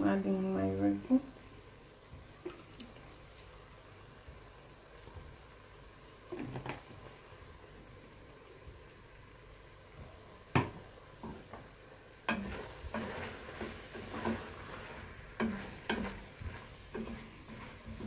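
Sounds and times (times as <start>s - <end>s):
wooden spoon scraping a pot: 12.2s - 18.0s.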